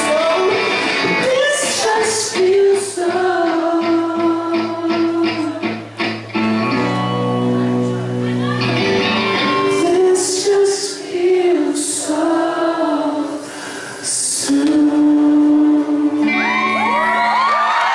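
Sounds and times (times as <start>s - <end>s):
man singing acoustic ballad: 0.0s - 5.6s, 9.6s - 12.3s.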